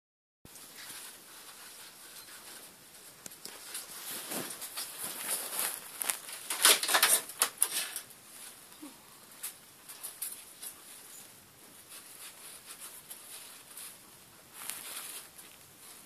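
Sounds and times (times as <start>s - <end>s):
rustling in bedding: 0.5s - 6.5s, 10.4s - 16.0s.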